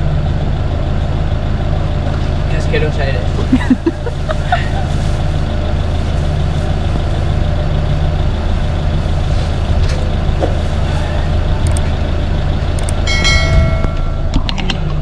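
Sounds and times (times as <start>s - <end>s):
heavy vehicle engine idling: 0.0s - 15.0s
street traffic: 0.0s - 15.0s
multi-tone chime: 13.1s - 14.4s.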